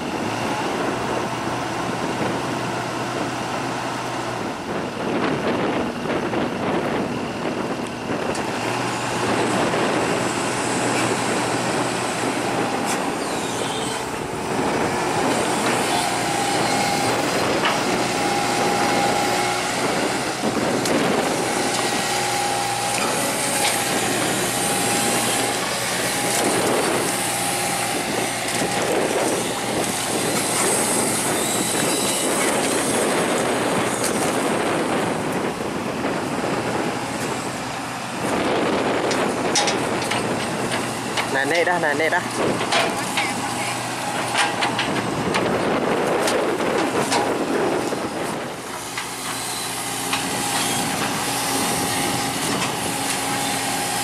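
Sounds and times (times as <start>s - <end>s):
heavy diesel engine hum: 0.0s - 54.0s
tracks clanking and squealing: 8.3s - 35.1s, 38.2s - 54.0s
machine whine: 9.3s - 37.5s.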